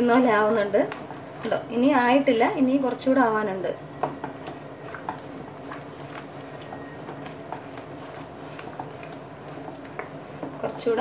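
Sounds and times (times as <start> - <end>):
spoon scraping a pan: 4.2 - 11.0.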